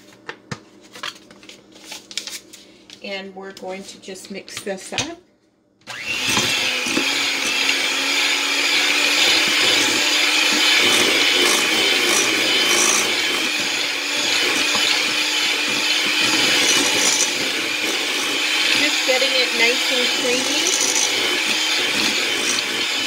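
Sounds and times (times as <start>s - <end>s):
electric hand mixer running: 5.9s - 23.0s.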